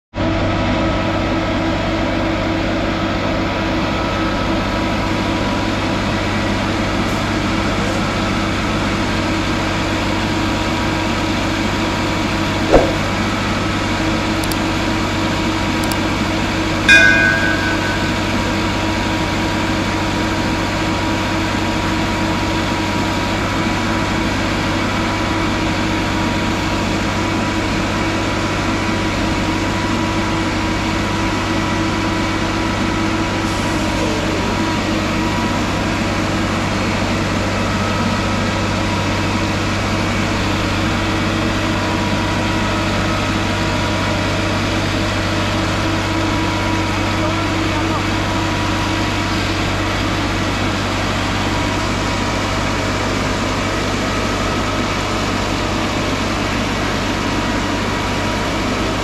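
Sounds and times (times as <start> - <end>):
diesel engine idling with whine: 0.2 - 59.0
sharp knock: 12.7 - 13.3
ringing metal clank: 16.9 - 19.0.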